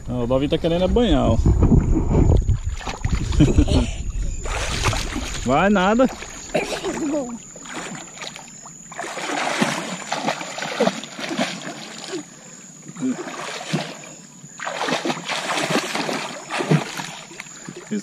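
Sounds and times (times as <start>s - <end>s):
child splashing in water: 2.6s - 5.5s, 6.1s - 12.3s, 13.0s - 17.9s.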